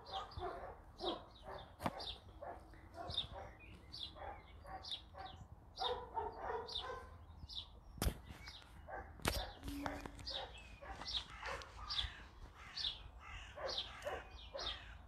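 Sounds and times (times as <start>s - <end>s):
dog barking: 0.0s - 3.6s, 4.2s - 7.2s, 8.9s - 12.1s, 13.5s - 14.9s.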